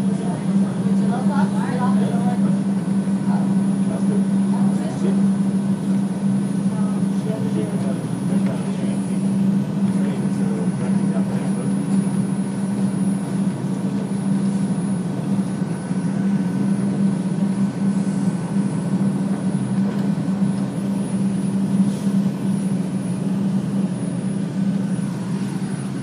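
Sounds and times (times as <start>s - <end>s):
train motor hum: 0.0s - 26.0s.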